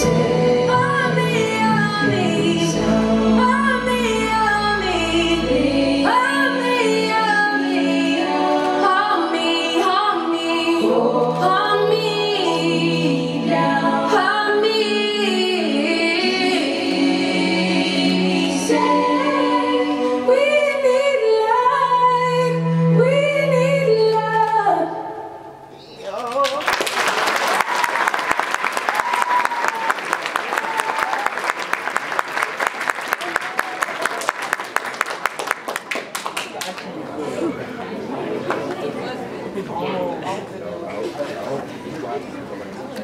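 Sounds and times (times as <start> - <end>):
woman singing with vibrato: 0.0 - 25.5.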